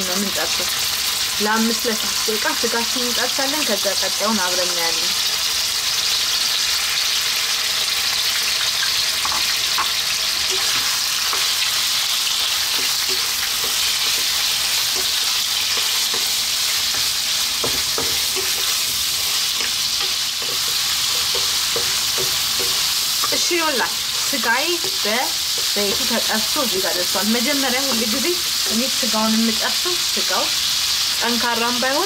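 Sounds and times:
meat sizzling in hot oil: 0.0 - 32.0
spatula scraping and tapping pan: 8.8 - 26.8.

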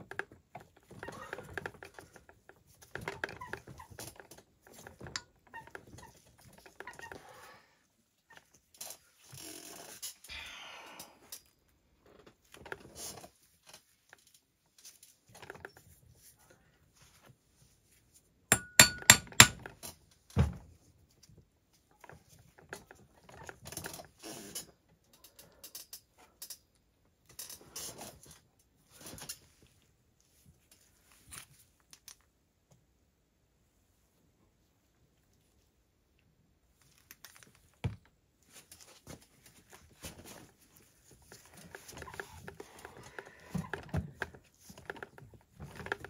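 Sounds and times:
sharp ringing metal clicks: 18.5 - 19.6
metal clinks and knocks: 18.5 - 19.7.

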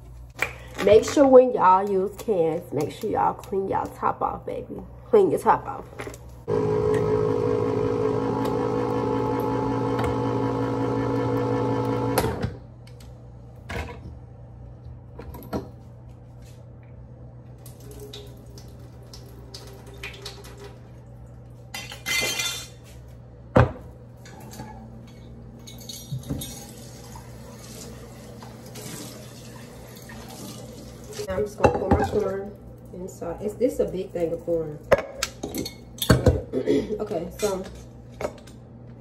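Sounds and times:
electric can opener humming: 6.5 - 13.0.

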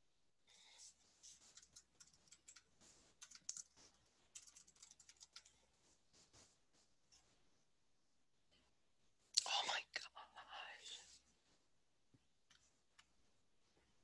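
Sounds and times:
computer keyboard typing: 1.3 - 5.6.

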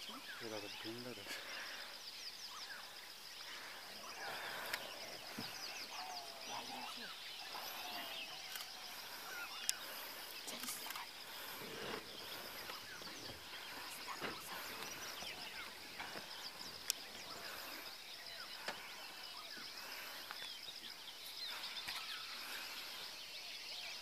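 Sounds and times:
bird chirps and calls: 0.0 - 24.0
high insect drone: 0.0 - 24.0.

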